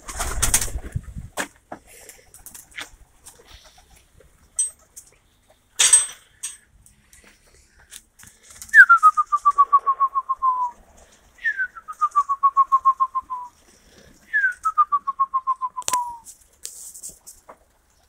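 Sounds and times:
trilled whistles: 8.7 - 10.8, 11.4 - 13.5, 14.3 - 16.2.

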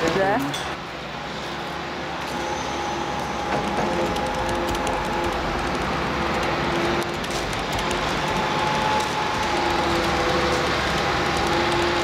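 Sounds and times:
excavator engine and hydraulics drone: 0.0 - 12.0.

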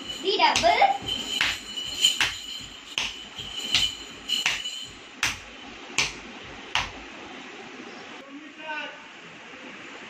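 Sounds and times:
bare feet stamping on tiles: 0.0 - 7.0.

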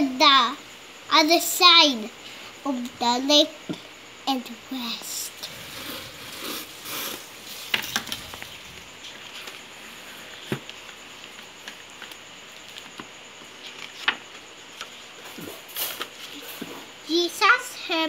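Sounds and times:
book page turning: 5.9 - 14.9.

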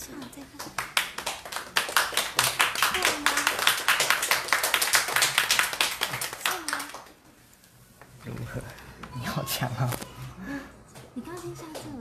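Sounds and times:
small group applauding: 0.0 - 7.4, 10.8 - 12.0.

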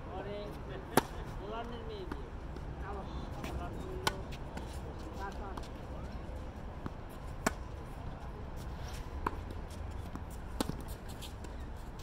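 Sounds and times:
tennis balls struck by racquets: 0.8 - 6.1, 6.8 - 12.0
tennis balls bouncing on court: 0.8 - 12.0.

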